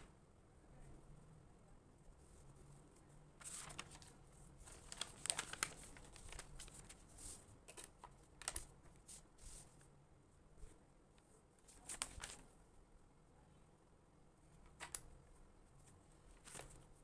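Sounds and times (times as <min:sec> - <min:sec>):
paper rustling: 0:03.4 - 0:09.8, 0:11.6 - 0:12.5, 0:15.8 - 0:17.0.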